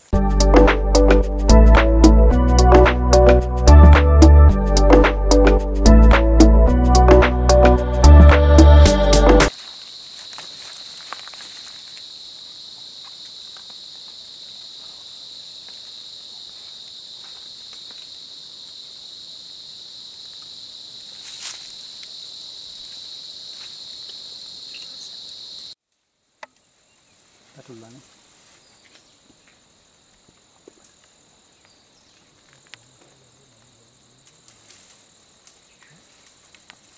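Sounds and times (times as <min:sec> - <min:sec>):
forest insects droning: 0:08.7 - 0:36.9.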